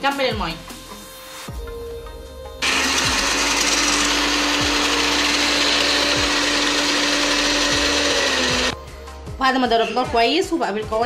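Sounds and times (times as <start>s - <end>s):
blender running: 2.6s - 8.8s.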